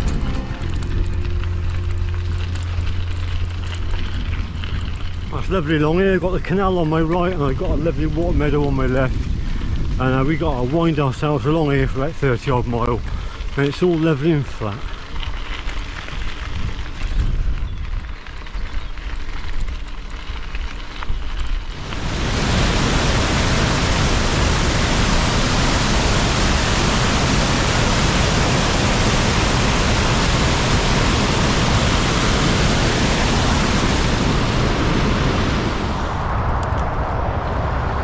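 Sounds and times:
motorway traffic rumble: 0.0 - 38.0
wind rumble on microphone: 0.0 - 38.0
water rushing over a weir: 21.7 - 36.2.

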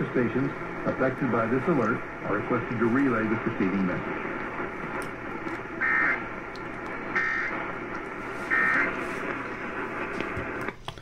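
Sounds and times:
radio hiss: 0.0 - 10.8
buzzy warbling data bursts: 5.8 - 6.2, 7.1 - 7.5.

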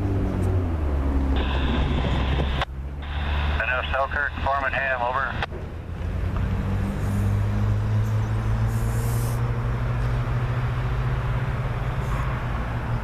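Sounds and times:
distant diesel locomotive drone: 0.0 - 13.0.

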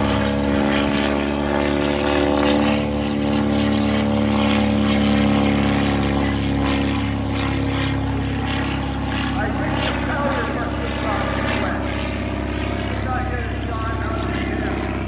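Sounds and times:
propeller engine droning: 0.0 - 15.0.

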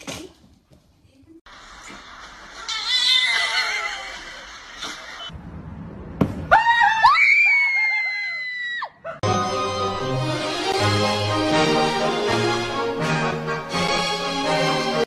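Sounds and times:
background music: 9.2 - 15.0.

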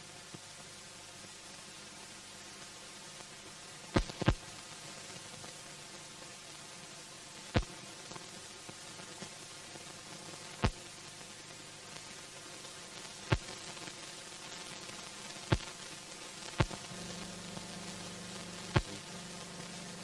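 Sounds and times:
film hiss: 0.0 - 20.0
sharp pops: 4.0 - 4.4, 13.3 - 13.6, 15.5 - 15.8, 16.5 - 17.0, 18.6 - 19.0
faint hum: 15.3 - 20.0.

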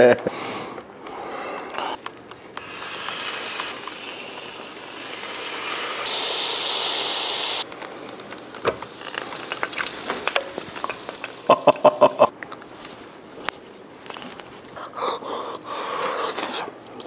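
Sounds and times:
pork sizzling: 2.6 - 7.7, 8.9 - 11.6.

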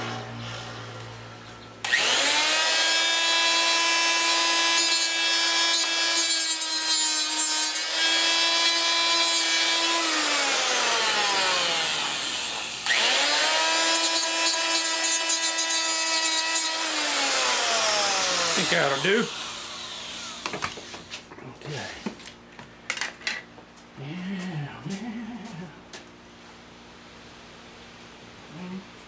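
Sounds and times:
cutoff wheel grinding metal: 1.8 - 20.6
die grinder whining: 1.8 - 21.0.

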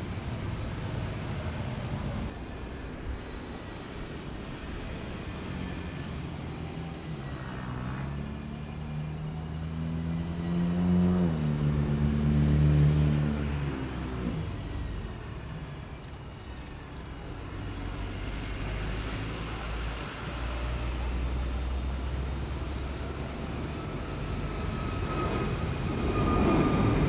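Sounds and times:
vehicle engine passing by: 5.5 - 15.1, 17.4 - 27.0.

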